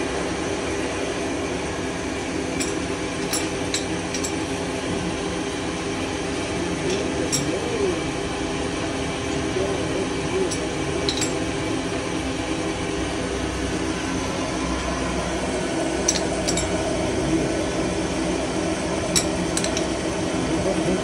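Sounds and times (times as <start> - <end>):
light metallic clinks: 10.5 - 11.4.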